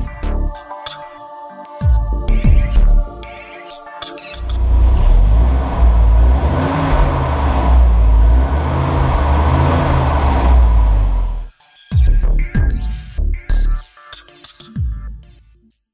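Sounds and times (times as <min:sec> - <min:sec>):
car engine revving: 0:04.5 - 0:11.5.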